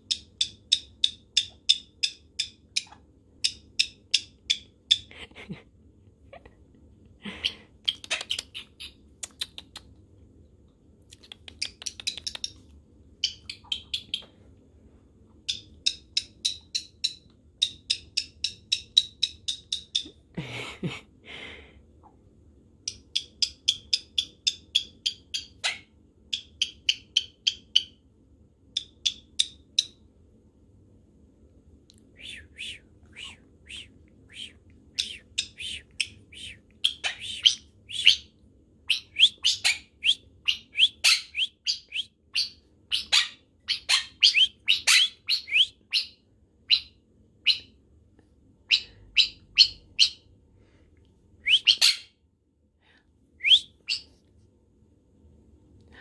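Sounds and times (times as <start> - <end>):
parrot clicking chirps: 0.1 - 5.1, 7.9 - 9.9, 11.2 - 12.6, 13.2 - 14.3, 15.4 - 20.2, 22.9 - 28.0, 28.7 - 30.0
harsh parrot calls: 32.2 - 38.3, 38.9 - 47.7, 51.5 - 52.1.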